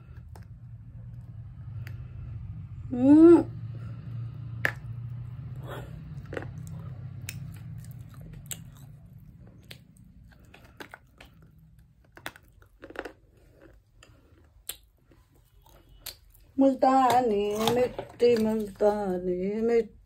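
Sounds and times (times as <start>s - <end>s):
low hum: 0.0s - 14.3s
person chewing crunchy clay: 4.5s - 18.8s.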